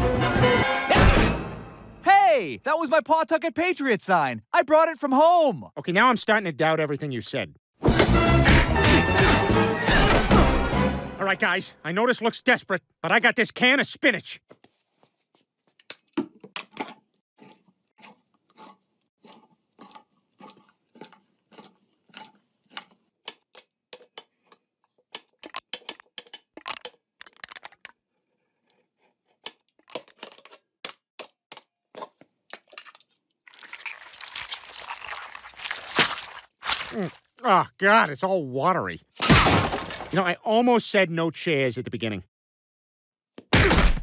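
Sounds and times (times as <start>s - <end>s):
person gulping: 33.5s - 37.5s.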